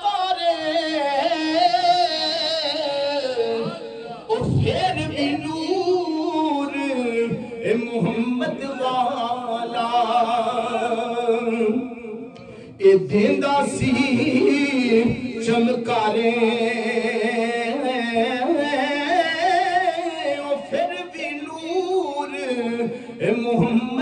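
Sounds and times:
man singing unaccompanied: 0.0s - 24.0s.

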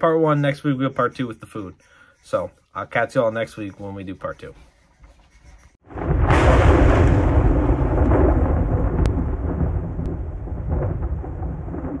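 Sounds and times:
deep thunder-like rumble: 5.9s - 12.0s.

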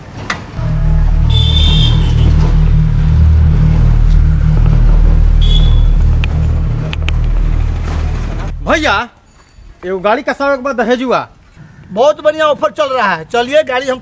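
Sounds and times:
high warbling chirp: 0.6s - 8.9s
deep steady rumble: 0.6s - 9.2s.

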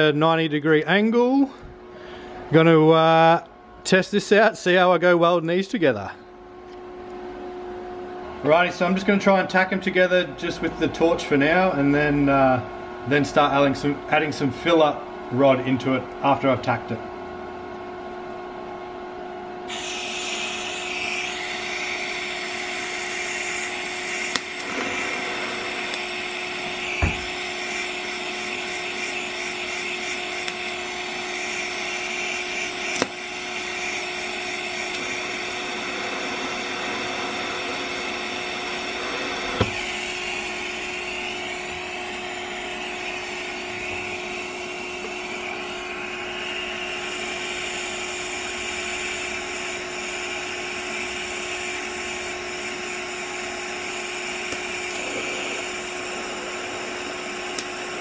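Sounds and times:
steady hum: 0.0s - 58.0s
welding arc hissing buzz: 19.7s - 58.0s
sharp clicks: 32.9s - 33.2s.

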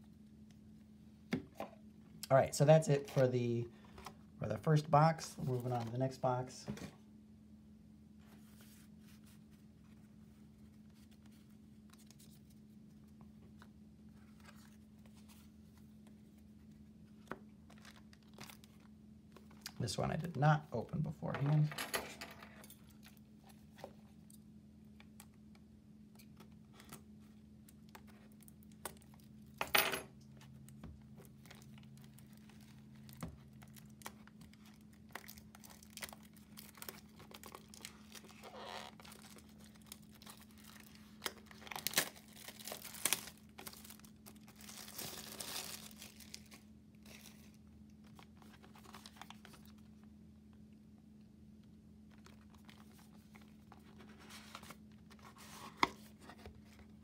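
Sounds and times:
faint steady hum: 0.0s - 57.0s
plastic wrap crinkling: 17.6s - 19.8s, 31.2s - 49.9s.

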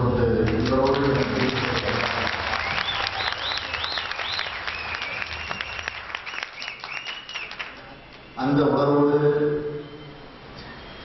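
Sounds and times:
audience clapping: 0.4s - 8.3s.

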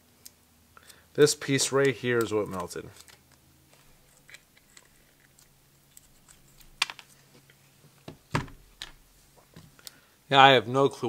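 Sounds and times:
tools and parts clicking: 1.6s - 7.6s.

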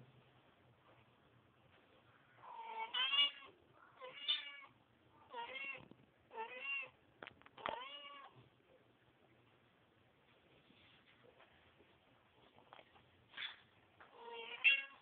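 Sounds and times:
cat meowing: 2.5s - 4.7s, 5.3s - 7.0s, 7.6s - 8.4s, 14.1s - 15.0s.

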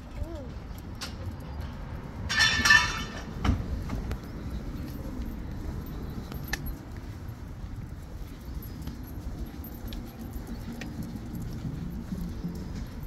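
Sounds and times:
low outdoor background noise: 0.0s - 13.0s
metallic jingle: 8.4s - 12.0s.

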